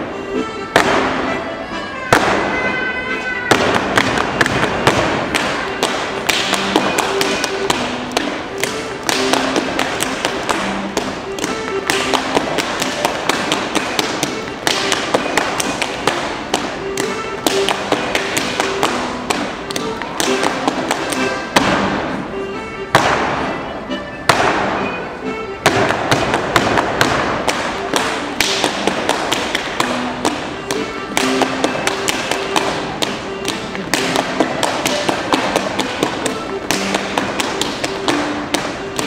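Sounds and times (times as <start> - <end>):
dance music: 0.0 - 39.0
rhythmic slaps on thighs and shoes: 0.0 - 39.0
stamps on dance floor: 0.7 - 1.4, 2.1 - 2.6, 3.5 - 22.2, 22.9 - 23.5, 24.3 - 24.9, 25.6 - 39.0
hand claps: 3.5 - 21.3, 25.8 - 39.0.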